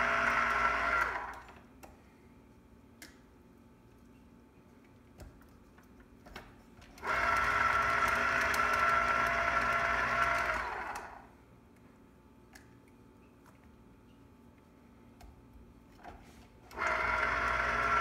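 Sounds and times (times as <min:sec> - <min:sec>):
citrus press motor running: 0:00.0 - 0:01.6, 0:07.0 - 0:11.3, 0:16.7 - 0:18.0.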